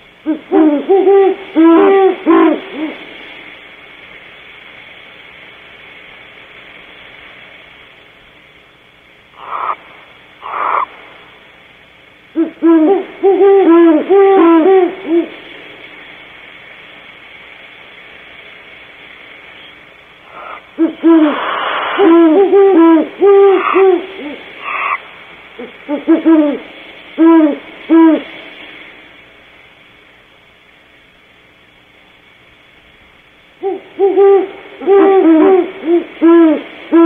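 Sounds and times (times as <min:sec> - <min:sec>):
short high noisy owl calls: 0:00.1 - 0:03.5, 0:09.3 - 0:11.5, 0:12.3 - 0:16.3, 0:19.4 - 0:29.3, 0:33.6 - 0:37.0
owls hooting: 0:00.2 - 0:03.1, 0:09.4 - 0:11.2, 0:12.3 - 0:15.4, 0:19.6 - 0:28.5, 0:33.6 - 0:37.0.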